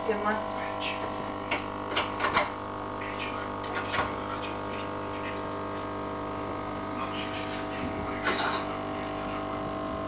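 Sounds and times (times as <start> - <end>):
aquarium pump humming: 0.0 - 10.0.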